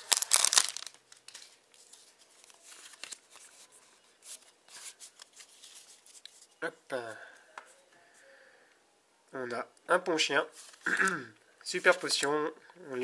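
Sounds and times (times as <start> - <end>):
foil wrapper crinkling and tearing: 0.0 - 1.6
cards rustling and clicking: 0.0 - 6.5.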